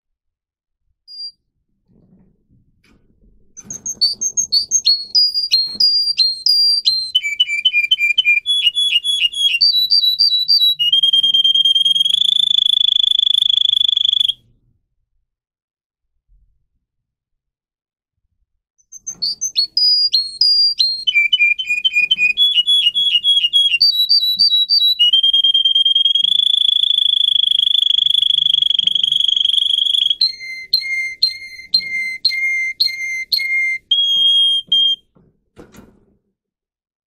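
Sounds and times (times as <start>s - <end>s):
canary singing: 1.1s - 1.3s, 3.6s - 14.4s, 18.9s - 35.0s.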